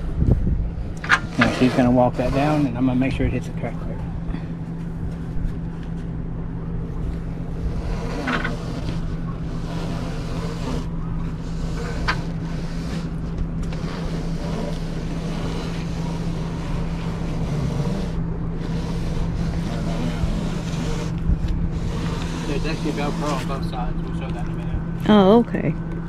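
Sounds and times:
motor humming: 0.0 - 26.0.

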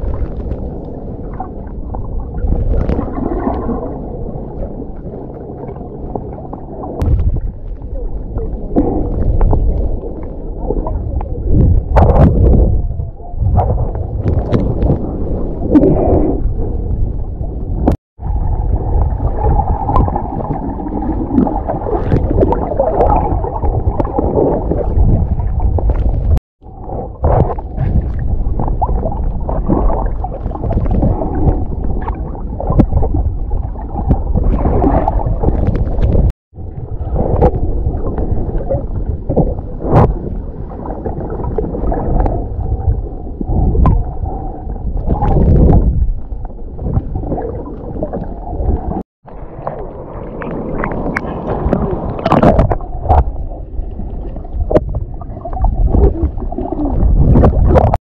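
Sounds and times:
clicks and crackles: 0.0 - 1.0, 13.5 - 15.9, 25.5 - 26.4, 34.0 - 36.3
underwater rushing and gurgling: 0.0 - 58.0.

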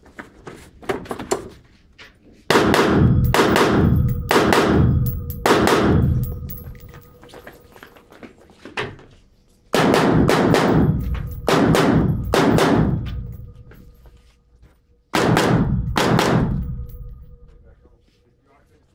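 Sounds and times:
rifle shots echoing indoors: 2.5 - 7.6, 9.7 - 14.0, 15.1 - 17.4.

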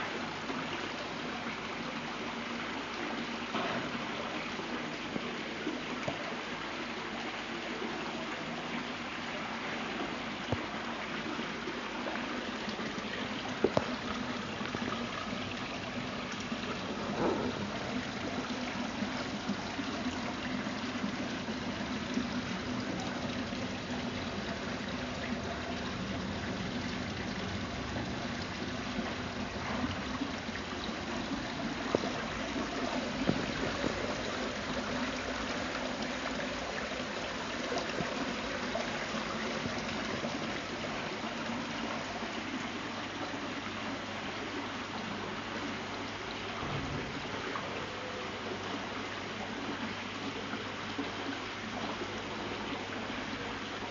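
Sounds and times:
waterfall splashing into pool: 10.4 - 42.3, 46.4 - 47.9.

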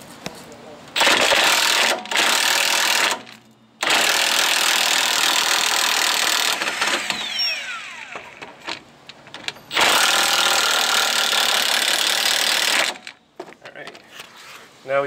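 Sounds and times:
impact wrench hammering: 1.0 - 8.8, 9.7 - 13.2
falling whine: 6.6 - 8.8.

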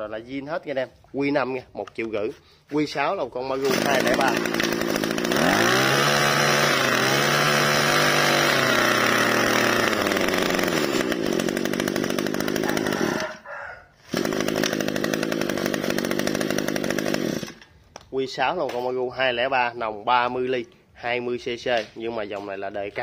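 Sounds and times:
brush cutter engine running: 3.5 - 17.8.

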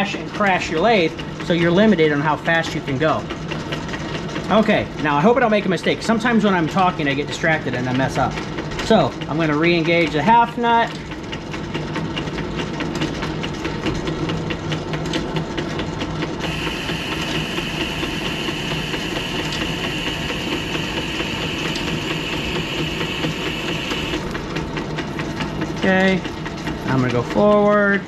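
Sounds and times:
lathe running: 16.3 - 26.7.

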